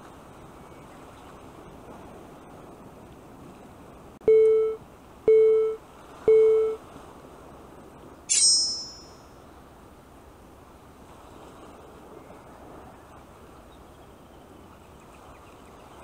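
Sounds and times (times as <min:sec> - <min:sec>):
sea noise: 0:00.0 - 0:16.0
wind: 0:00.0 - 0:16.0
short beeps: 0:04.3 - 0:06.8, 0:08.3 - 0:09.2
bright high chime: 0:08.3 - 0:09.2.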